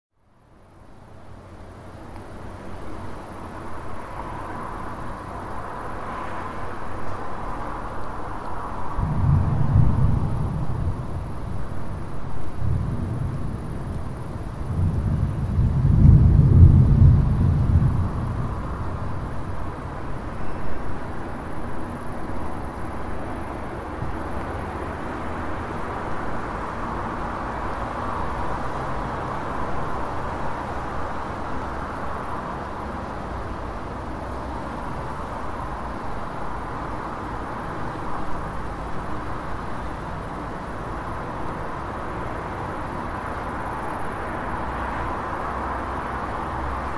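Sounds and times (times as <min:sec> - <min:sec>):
hiss of car traffic: 0:00.4 - 0:46.9
low rumble of thunder: 0:08.9 - 0:22.5.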